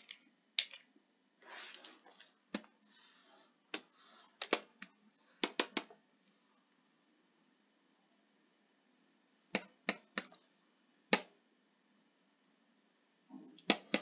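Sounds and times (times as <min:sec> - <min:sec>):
keyboard and mouse clicks: 0:04.4 - 0:06.0, 0:13.6 - 0:14.0.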